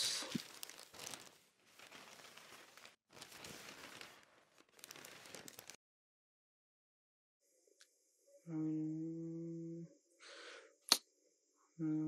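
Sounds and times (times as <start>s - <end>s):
newspaper pages rustling: 0.0s - 5.8s.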